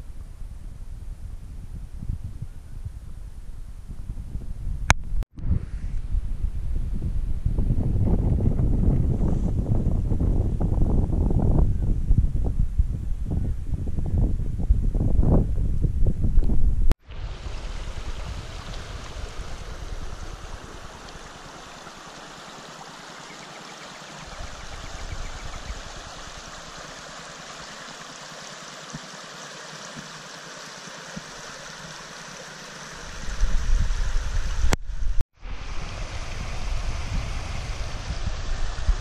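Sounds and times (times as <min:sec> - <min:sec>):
creek water rushing over stones: 0:17.0 - 0:34.8.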